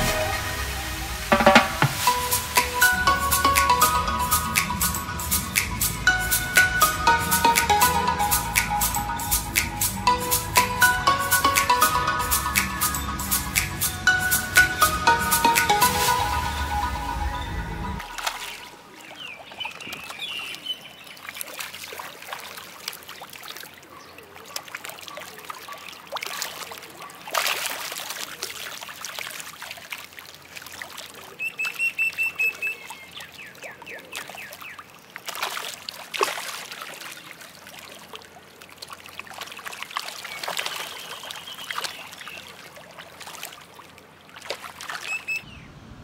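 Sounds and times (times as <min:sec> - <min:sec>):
fish splashing at water surface: 0:21.2 - 0:32.2, 0:34.1 - 0:45.4
bird chirping: 0:45.0 - 0:45.8.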